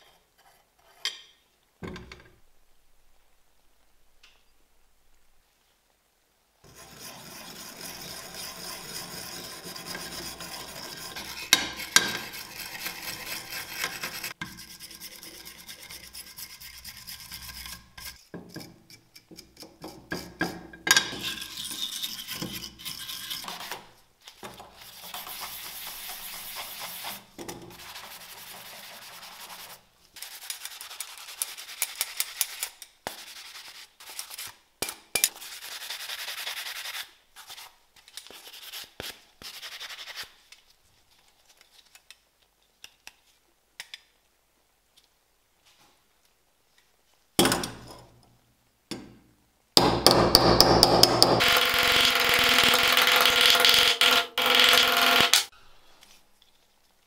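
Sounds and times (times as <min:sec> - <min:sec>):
wire brush scrubbing metal: 0:06.7 - 0:18.2, 0:21.2 - 0:23.8.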